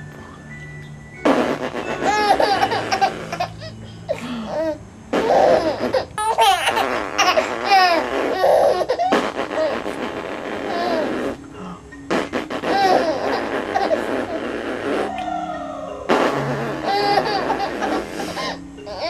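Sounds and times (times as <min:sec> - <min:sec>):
baby laughing: 0:01.7 - 0:03.8, 0:04.5 - 0:11.4, 0:12.2 - 0:19.0.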